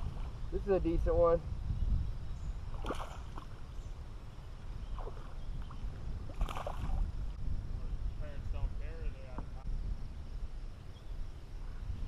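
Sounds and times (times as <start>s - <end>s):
fish splashing at the surface: 2.7s - 3.6s, 6.3s - 7.0s.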